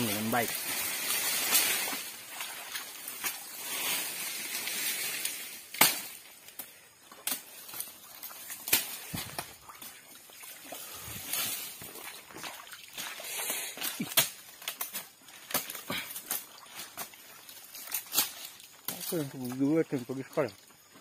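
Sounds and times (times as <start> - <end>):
steps sloshing in water and mud: 0.0 - 4.9, 7.0 - 21.0
dry palm fronds rustling: 0.0 - 21.0
stalks snapping: 4.5 - 10.0, 13.0 - 19.5.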